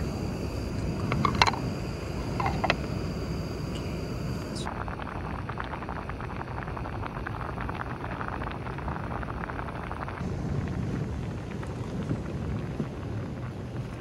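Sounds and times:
camp stove burner rushing: 0.0s - 4.7s
boiling water bubbling: 0.0s - 14.0s.

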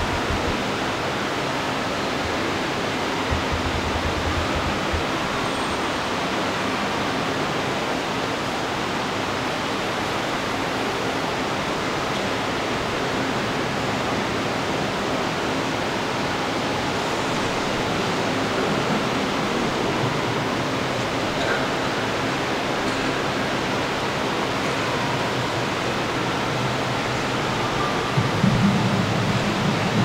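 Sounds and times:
steady hissing rushing noise: 0.0s - 30.0s.

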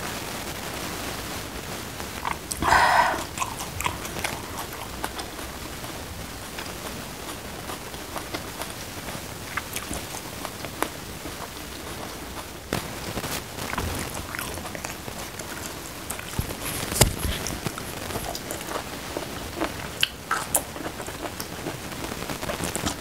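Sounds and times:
steady hiss: 0.0s - 23.0s
person chewing food: 2.2s - 23.0s.

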